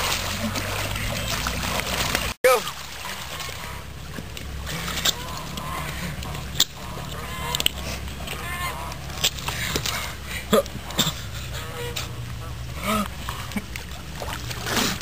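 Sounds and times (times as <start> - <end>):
honking bird calls: 4.6 - 9.3, 10.8 - 12.6.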